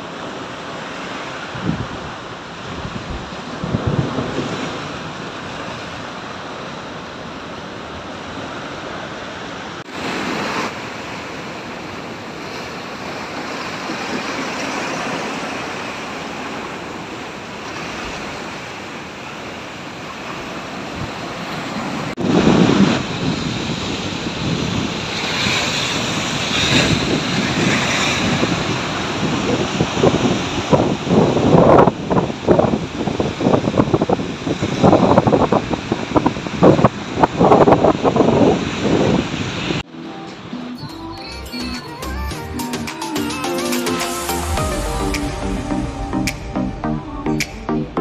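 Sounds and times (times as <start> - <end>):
big wave crashing: 0.0 - 40.8, 43.0 - 48.0
surf breaking over rocks: 9.8 - 39.8.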